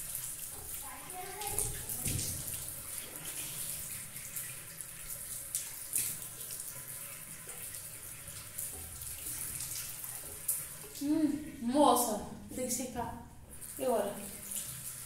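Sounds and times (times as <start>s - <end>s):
tap running into sink: 0.4s - 3.4s
water splashing onto face: 0.8s - 6.7s.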